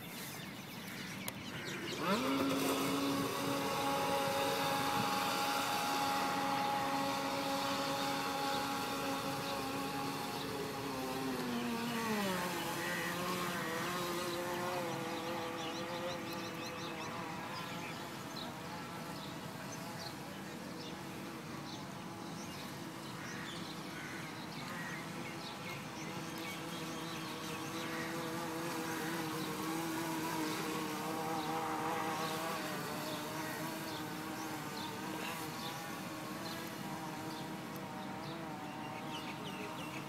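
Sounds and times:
model speedboat motor whine: 0:01.5 - 0:40.0.

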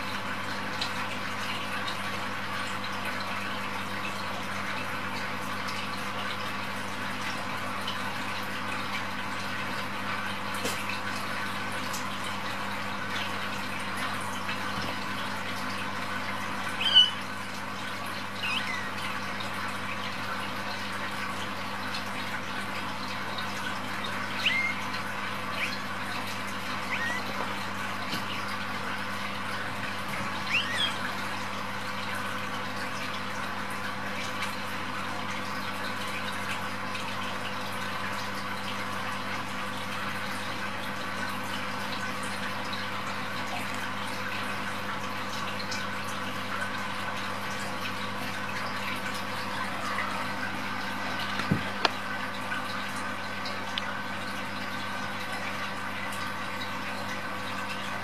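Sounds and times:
kittens mewing: 0:24.4 - 0:24.9.

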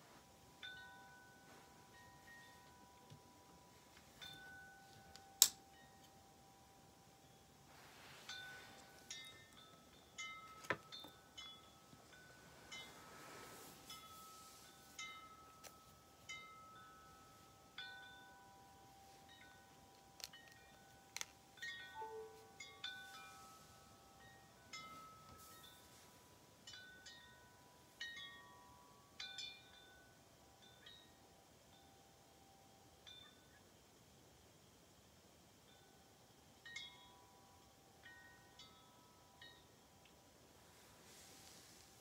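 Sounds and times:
wind chime ringing: 0:00.6 - 0:06.4, 0:07.2 - 0:26.0.

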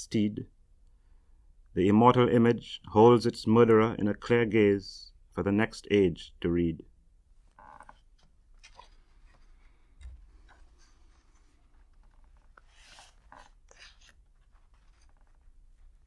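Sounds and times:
paper pages rustling: 0:08.2 - 0:09.8, 0:10.4 - 0:16.0.

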